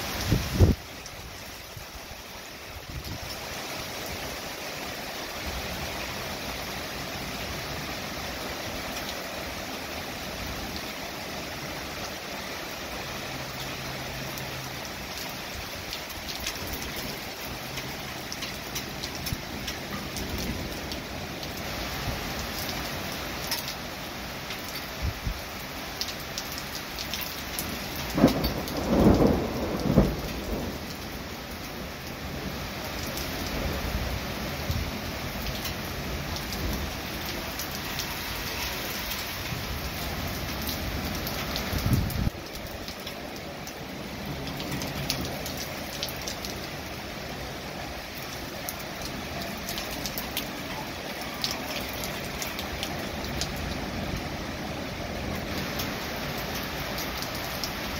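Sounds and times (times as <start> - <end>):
rain pattering: 0.0 - 57.9
thunder rumbling: 28.0 - 32.5.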